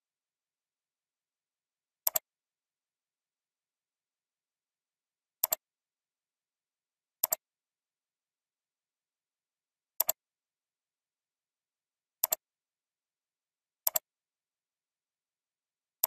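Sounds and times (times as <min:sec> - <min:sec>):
computer mouse clicking: 0:02.1 - 0:02.3, 0:05.4 - 0:05.6, 0:07.2 - 0:07.4, 0:10.0 - 0:10.2, 0:12.2 - 0:12.4, 0:13.9 - 0:14.1.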